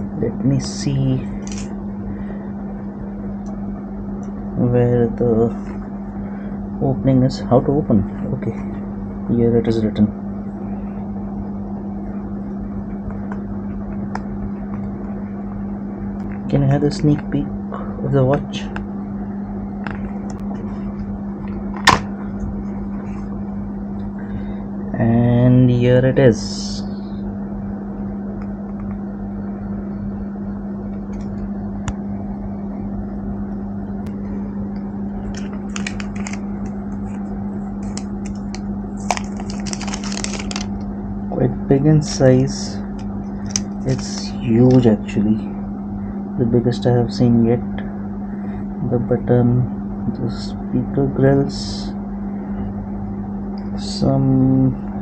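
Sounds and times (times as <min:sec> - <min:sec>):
low hum: 0:00.0 - 0:55.0
paper packaging tray rustling: 0:35.3 - 0:37.2, 0:37.8 - 0:40.8.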